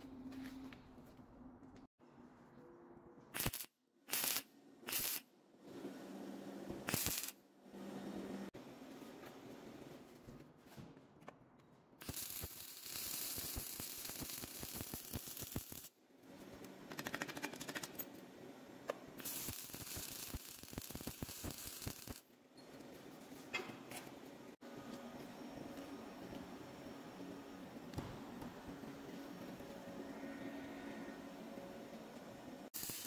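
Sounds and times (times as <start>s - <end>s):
crackling hiss with clicks: 12.0s - 15.9s.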